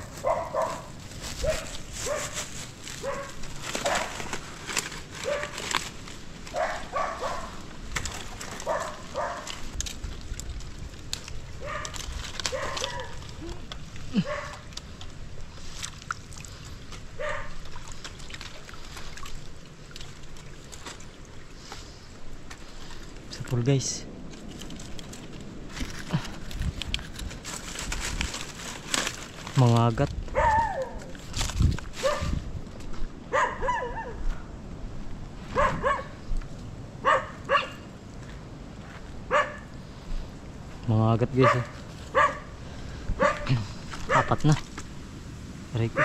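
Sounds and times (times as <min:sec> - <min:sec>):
dog barking: 0:00.0 - 0:02.4, 0:03.0 - 0:04.2, 0:05.2 - 0:05.6, 0:06.5 - 0:07.6, 0:08.6 - 0:09.5, 0:11.6 - 0:13.2, 0:14.2 - 0:14.6, 0:17.2 - 0:17.6, 0:30.3 - 0:31.0, 0:32.0 - 0:32.4, 0:33.3 - 0:34.2, 0:35.5 - 0:36.2, 0:37.0 - 0:37.8, 0:39.3 - 0:39.7, 0:41.4 - 0:42.5, 0:43.2 - 0:44.4
net sloshing and dripping water: 0:07.9 - 0:23.2.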